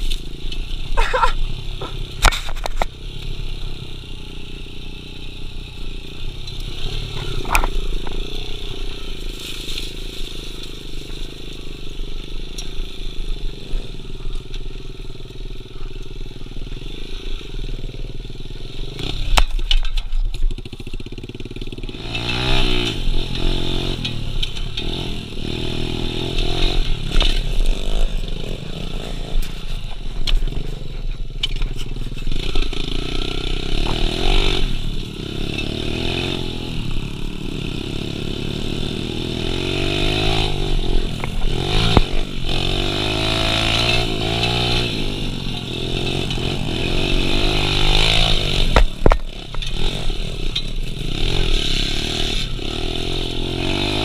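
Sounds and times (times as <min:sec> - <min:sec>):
bike clattering over rough ground: 0:00.0 - 0:03.4, 0:19.0 - 0:36.3, 0:39.3 - 0:51.7
small motorbike engine revving: 0:00.0 - 0:15.0, 0:15.6 - 0:19.7, 0:20.4 - 0:54.0.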